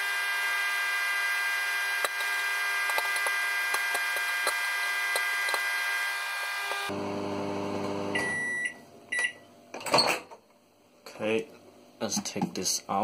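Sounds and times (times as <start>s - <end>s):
microwave oven humming: 0.0s - 10.2s.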